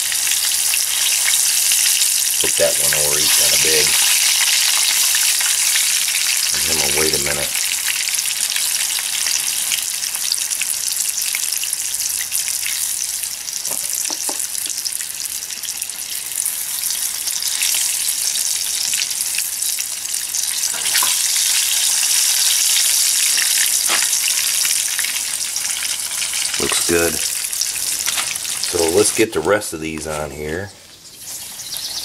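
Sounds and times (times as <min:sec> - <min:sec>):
fish deep-frying in hot oil: 0:00.0 - 0:29.4, 0:31.0 - 0:32.0.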